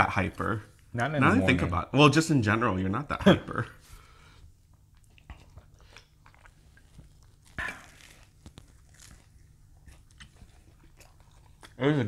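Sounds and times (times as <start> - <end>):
quiet chewing: 4.1 - 12.0
crunchy bite into fried food: 6.2 - 10.4.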